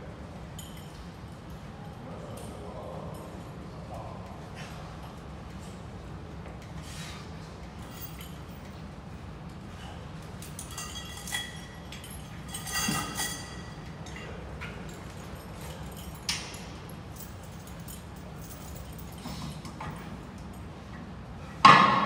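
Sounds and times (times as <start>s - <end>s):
low background hum: 0.0s - 22.0s
metal weight plates clinking: 10.6s - 14.3s.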